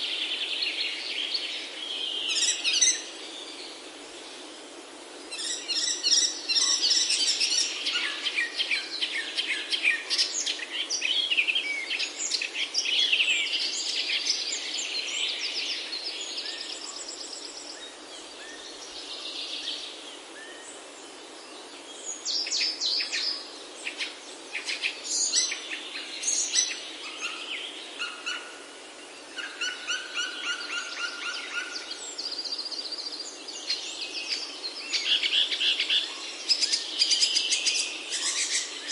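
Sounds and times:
birds chirping and singing: 0:29.2 - 0:38.9.

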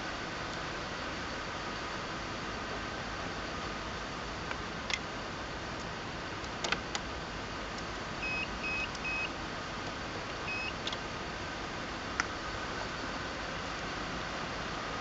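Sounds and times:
steady background hiss: 0:00.0 - 0:15.0
short high beeps: 0:08.2 - 0:09.3.

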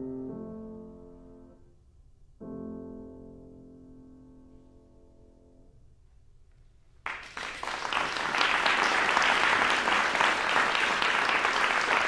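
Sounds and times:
audience applause: 0:07.1 - 0:12.0.

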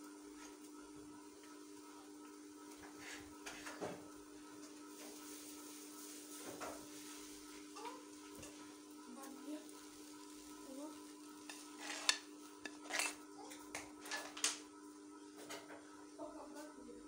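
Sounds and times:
steady hum: 0:00.0 - 0:17.0
iron scraping over cloth: 0:02.9 - 0:03.8, 0:09.4 - 0:13.3.

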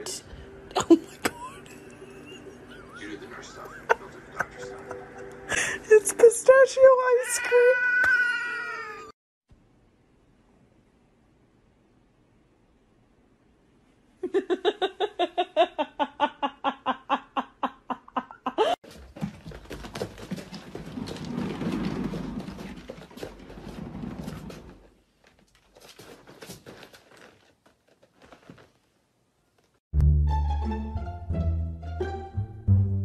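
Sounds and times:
exercise wheel rumbling and clicking: 0:18.6 - 0:28.8
plucked-string music: 0:30.0 - 0:33.0.

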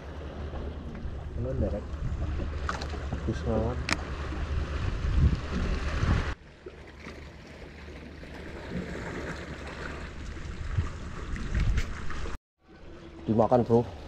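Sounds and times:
water sloshing against boat hull: 0:00.0 - 0:12.4
wind buffeting microphone: 0:00.4 - 0:06.4.

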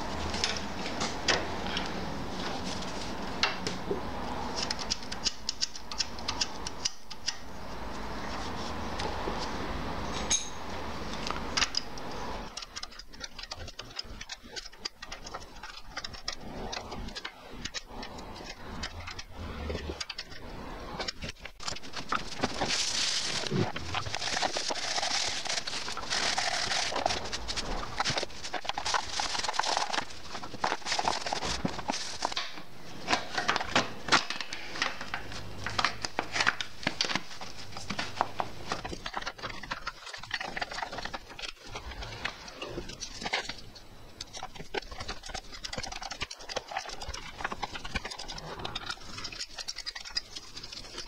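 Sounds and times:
rustling scrape: 0:02.3 - 0:03.4, 0:12.9 - 0:43.6.

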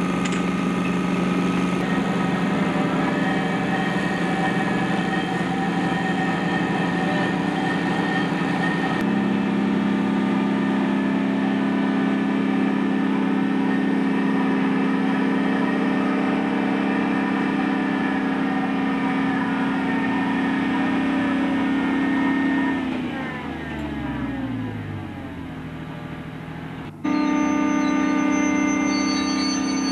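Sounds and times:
diesel engine running: 0:00.0 - 0:29.9.

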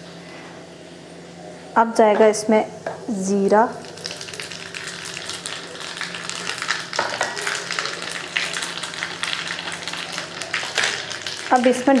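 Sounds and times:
seeds sizzling in hot oil: 0:03.1 - 0:12.0.

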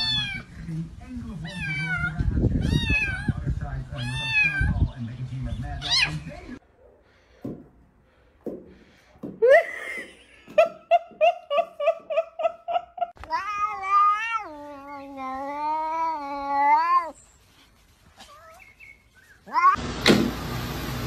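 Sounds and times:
cat meowing: 0:00.0 - 0:00.5, 0:01.5 - 0:03.4, 0:04.0 - 0:04.8, 0:13.2 - 0:17.2, 0:19.4 - 0:19.8
cat yowling: 0:13.2 - 0:17.2, 0:19.4 - 0:19.8.

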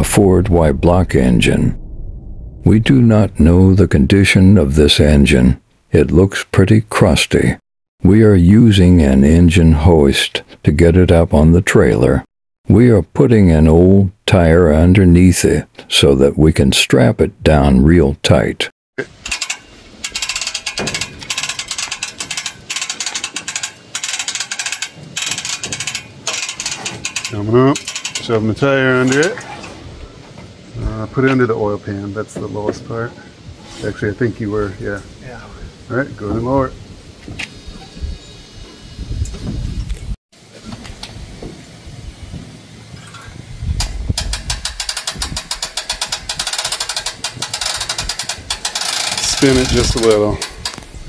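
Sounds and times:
engine hoist knock: 0:19.0 - 0:28.4, 0:43.8 - 0:50.8
metal handling noise: 0:19.0 - 0:28.4, 0:29.0 - 0:29.8, 0:43.0 - 0:51.0
metallic ratcheting clicks: 0:19.0 - 0:29.5, 0:43.8 - 0:50.9.

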